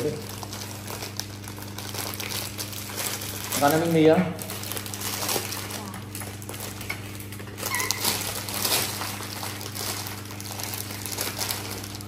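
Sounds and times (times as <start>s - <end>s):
low steady hum: 0.0s - 12.0s
plastic bag crinkling: 0.0s - 12.0s
brief high squeak: 7.7s - 8.1s.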